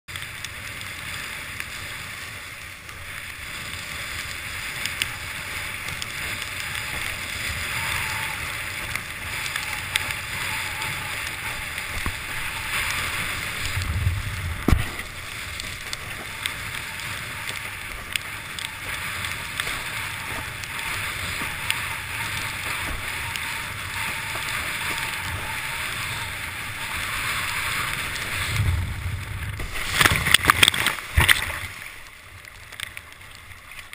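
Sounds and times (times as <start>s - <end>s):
rushing hiss of water and spray: 0.4s - 32.0s
heavy thump: 13.9s - 15.0s.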